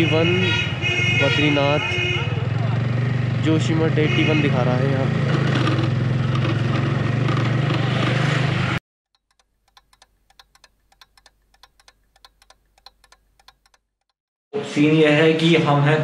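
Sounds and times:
motorcycle engine running: 0:02.4 - 0:08.8.

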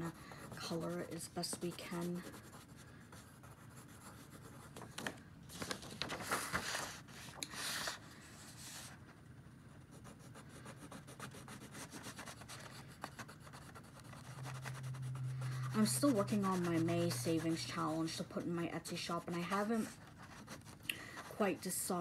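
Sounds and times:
scribbling on paper: 0:00.0 - 0:04.7, 0:09.8 - 0:21.8.

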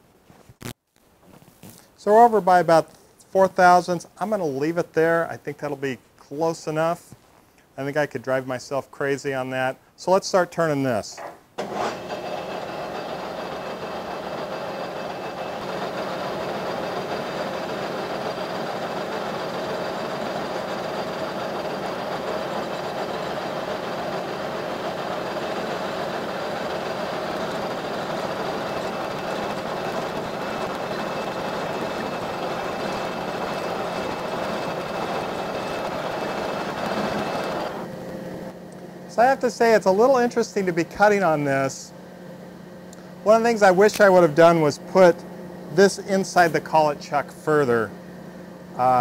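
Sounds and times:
metal lathe running: 0:11.6 - 0:37.9.

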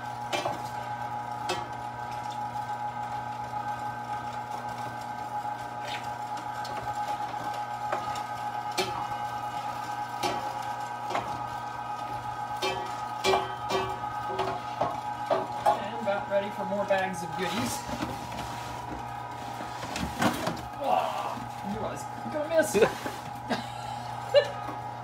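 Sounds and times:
meat grinder motor humming: 0:00.0 - 0:25.0.

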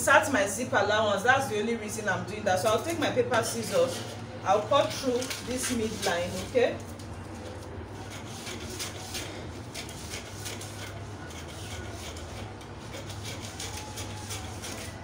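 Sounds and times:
steady low hum: 0:00.0 - 0:15.0
paper rustling on a tabletop: 0:03.7 - 0:15.0.

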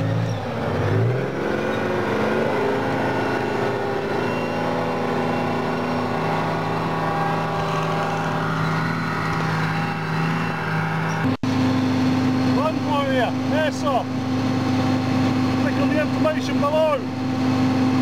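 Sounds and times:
tracked vehicle engine running: 0:00.0 - 0:18.0.

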